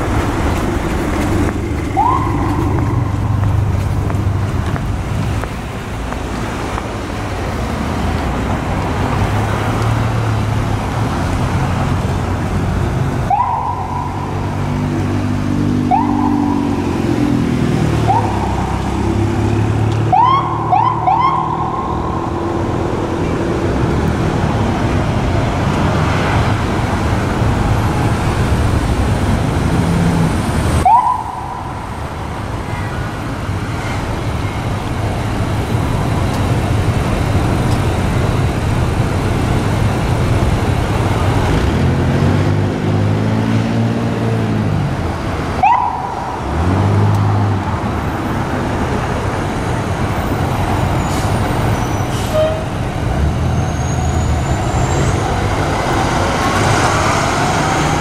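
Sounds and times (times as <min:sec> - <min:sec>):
fire engine running: 0:00.0 - 0:42.1, 0:44.8 - 0:58.0
road noise: 0:00.0 - 0:58.0
siren whoops: 0:01.9 - 0:03.2, 0:13.3 - 0:14.4, 0:15.8 - 0:16.8, 0:18.0 - 0:18.8, 0:20.1 - 0:22.5, 0:30.8 - 0:31.9, 0:45.6 - 0:46.4
engine revving: 0:41.2 - 0:45.0.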